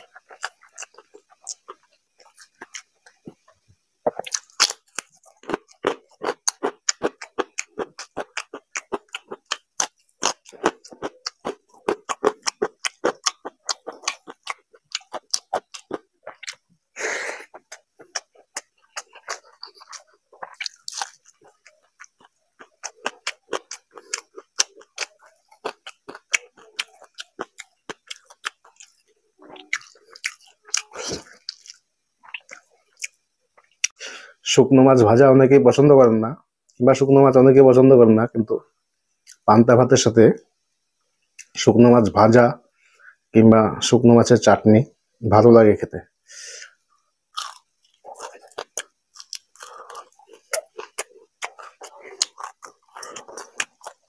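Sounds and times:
mouth noises: 0:00.0 - 0:31.6
chewing crisp food: 0:00.0 - 0:34.0, 0:47.3 - 0:54.0.

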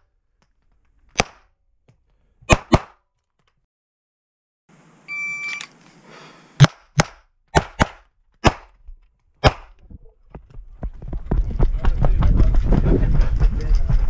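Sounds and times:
shot timer beep: 0:05.1 - 0:05.7.

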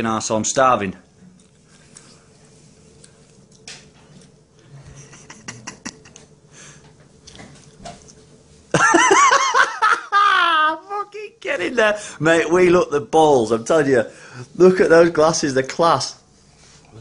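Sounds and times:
low steady hum: 0:00.0 - 0:17.0
man laughing loudly: 0:04.9 - 0:06.3, 0:08.7 - 0:10.9.

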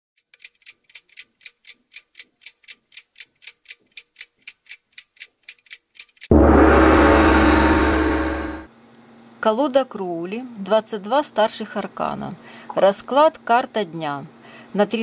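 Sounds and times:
clock ticking: 0:00.2 - 0:06.3
gong strike ringing: 0:06.3 - 0:08.7.

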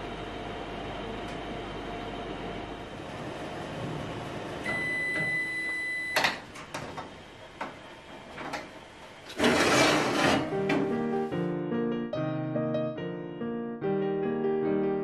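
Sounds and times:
oven timer long beep: 0:04.6 - 0:06.4
metal baking tray scraping: 0:09.3 - 0:10.6.

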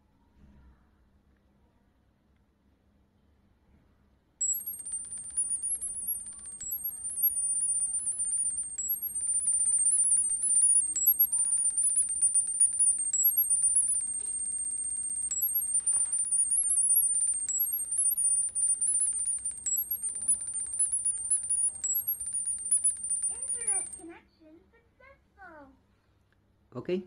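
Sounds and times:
high-pitched data tones: 0:04.4 - 0:24.0.

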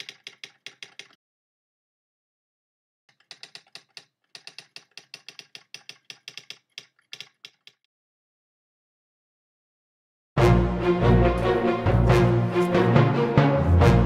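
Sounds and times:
keyboard typing clicks: 0:00.0 - 0:01.2, 0:03.1 - 0:07.9.

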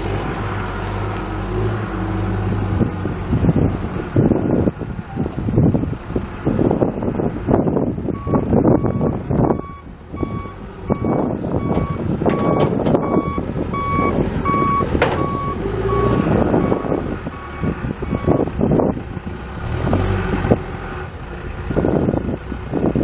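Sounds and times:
diesel engine running: 0:00.0 - 0:23.0
backup alarm beeping: 0:08.2 - 0:18.4
knocks and clatter: 0:14.9 - 0:15.4.

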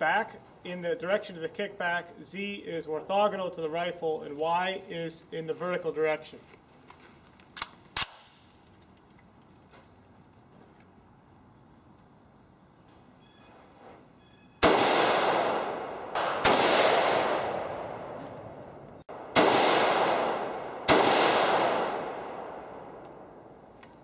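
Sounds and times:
echoing gunshots: 0:14.6 - 0:23.6.

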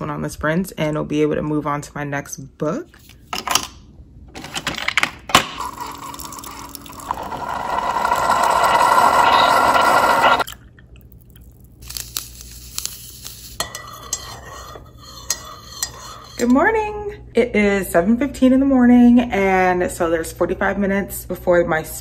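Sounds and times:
coffee streaming into mug: 0:05.6 - 0:10.7.

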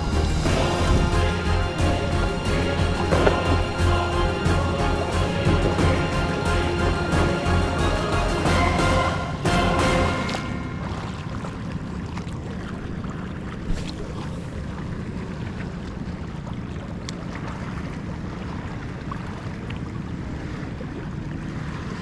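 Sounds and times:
wind on microphone: 0:00.0 - 0:01.3
boat diesel engine running: 0:00.0 - 0:12.0.

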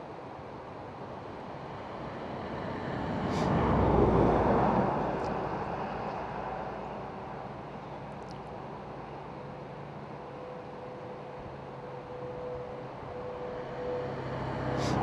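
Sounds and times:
vehicle passing by: 0:01.4 - 0:07.4, 0:13.2 - 0:15.0.

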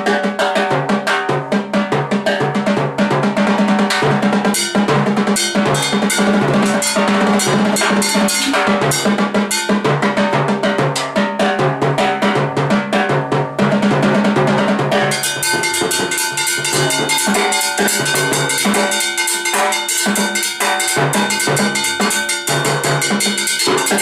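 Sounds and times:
pitched drum tones: 0:00.0 - 0:24.0
timbales played with sticks: 0:03.5 - 0:11.2, 0:14.1 - 0:24.0
ringing cowbell: 0:03.9 - 0:10.4, 0:15.0 - 0:24.0.

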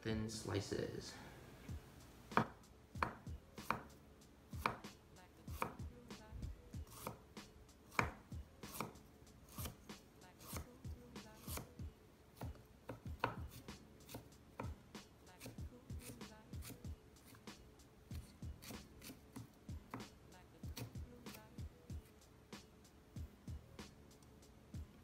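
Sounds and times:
knife slicing on wooden board: 0:07.9 - 0:09.8, 0:11.4 - 0:11.7.

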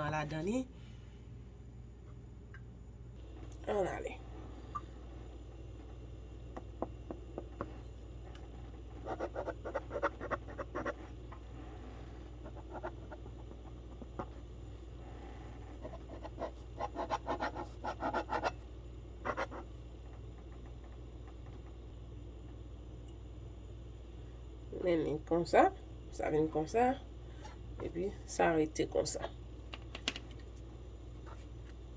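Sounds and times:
low steady hum: 0:00.0 - 0:31.9.

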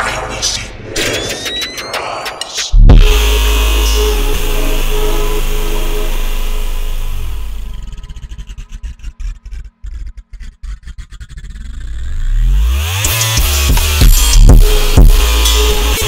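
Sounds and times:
stuttering chopped break: 0:00.0 - 0:07.1
electronic trap beat: 0:00.0 - 0:10.3, 0:12.5 - 0:16.0
rising pitch sweep: 0:02.8 - 0:12.6.

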